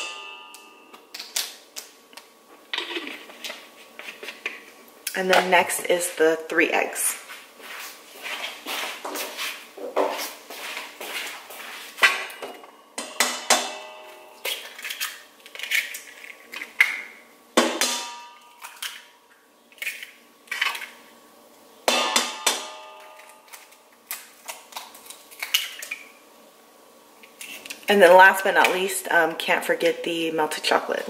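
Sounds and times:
bowl ringing: 0.0 - 1.1, 13.0 - 14.5, 22.0 - 23.5.

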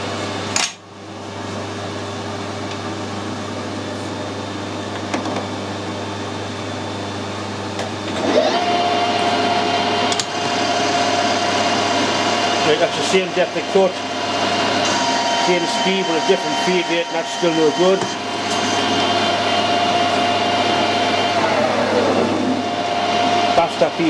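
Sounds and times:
lathe motor hum: 5.8 - 24.0
lathe spindle gear whine: 8.0 - 24.0.

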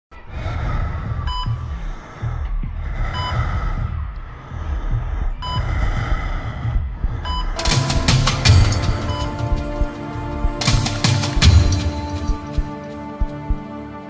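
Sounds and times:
low pulsing music: 0.1 - 14.0
heart monitor beeps: 1.3 - 1.8, 3.1 - 4.0, 5.4 - 5.8, 7.2 - 10.6.

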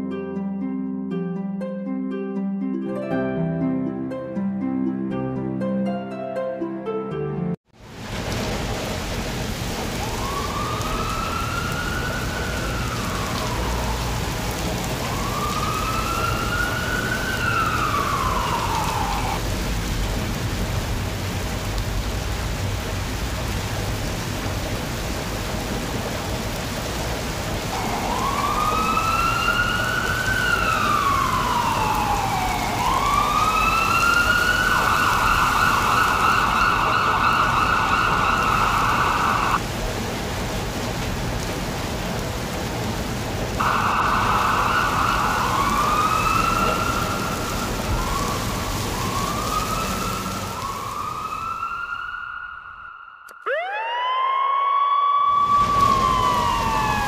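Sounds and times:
steady rain: 7.8 - 52.5, 55.2 - 57.0
ambulance siren wailing: 9.8 - 19.5, 27.6 - 39.6, 43.6 - 57.0.

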